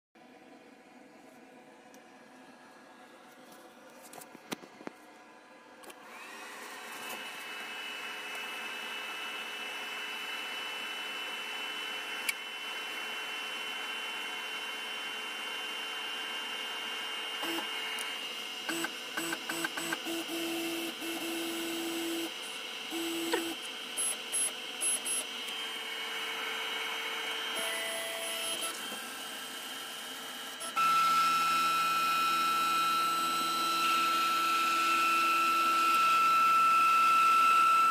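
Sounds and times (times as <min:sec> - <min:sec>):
spindle motor whining: 0:17.3 - 0:37.9.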